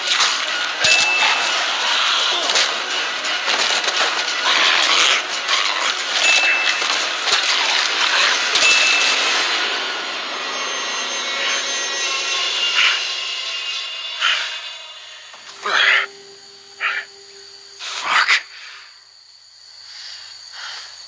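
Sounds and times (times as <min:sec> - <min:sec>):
short screeches: 0:00.4 - 0:18.0
brief high rings: 0:08.4 - 0:17.7.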